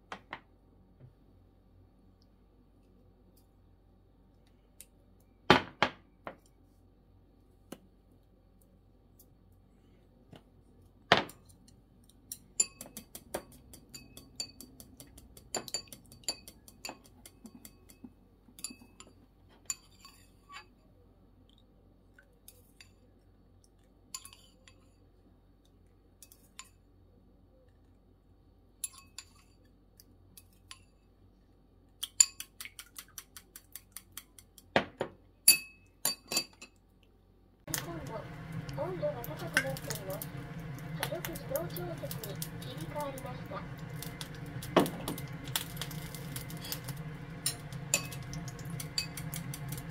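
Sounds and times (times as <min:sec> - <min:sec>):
chopsticks beating eggs in a bowl: 0:11.5 - 0:20.4, 0:32.0 - 0:34.7, 0:37.7 - 0:49.9.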